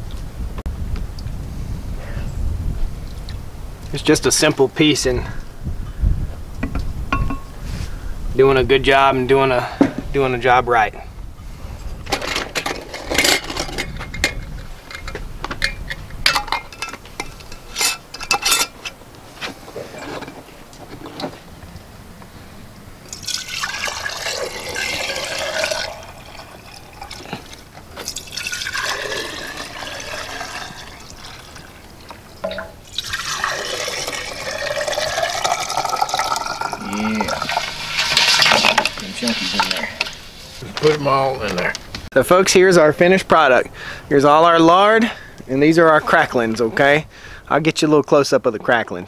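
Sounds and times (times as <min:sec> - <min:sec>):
liquid pouring into glass jar: 0:23.1 - 0:31.8, 0:32.4 - 0:40.2.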